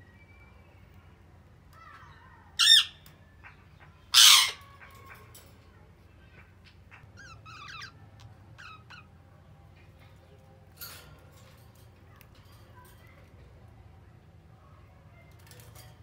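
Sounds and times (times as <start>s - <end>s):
budgerigars squawking and chirping: 2.6s - 5.4s, 6.7s - 9.2s.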